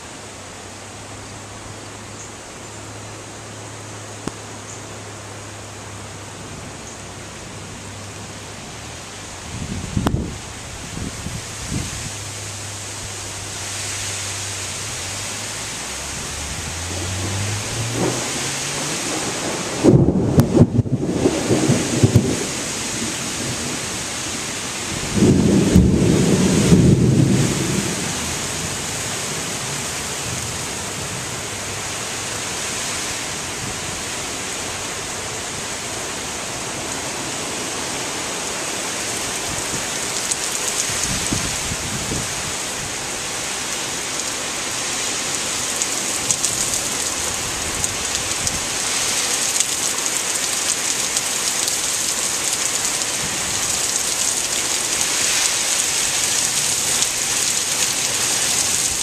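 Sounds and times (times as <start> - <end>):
heavy rain pouring: 0.0 - 59.0
thunder rumble: 14.6 - 31.7.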